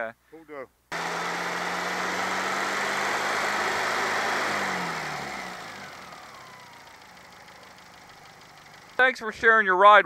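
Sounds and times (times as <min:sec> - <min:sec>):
car engine revving: 0:00.9 - 0:09.0
engine whine: 0:00.9 - 0:09.0.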